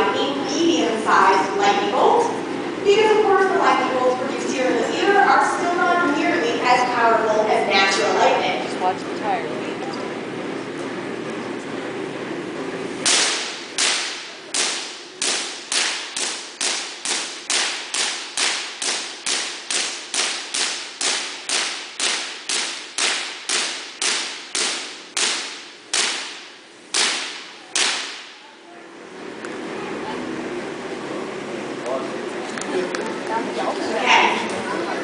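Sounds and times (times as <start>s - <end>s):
electric spark cracks: 13.0s - 28.4s.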